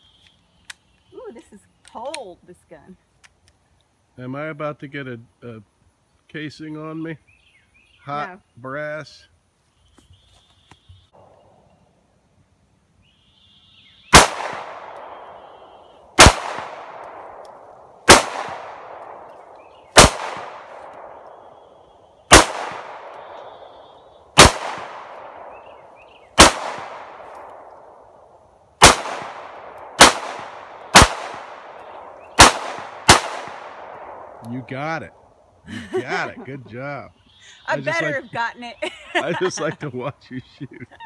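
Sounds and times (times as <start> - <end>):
handgun shots with echo: 20.0 - 21.1, 22.3 - 23.5, 24.4 - 25.6, 26.4 - 27.7, 28.8 - 34.3.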